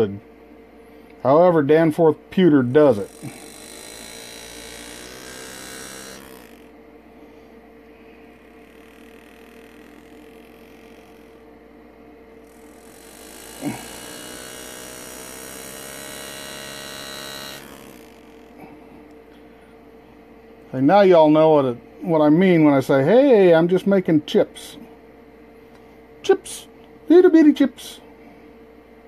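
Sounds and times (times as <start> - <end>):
steady hum: 0.0 - 29.0
engraving tool buzzing: 1.9 - 19.4.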